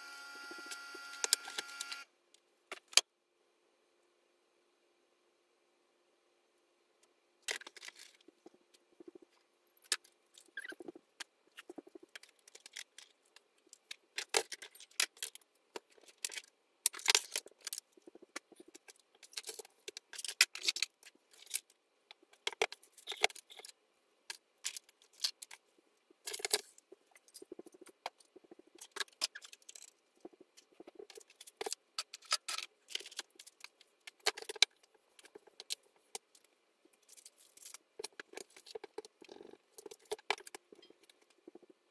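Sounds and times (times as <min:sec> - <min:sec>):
small objects clattering on a table: 0:07.4 - 0:08.4, 0:28.8 - 0:36.4.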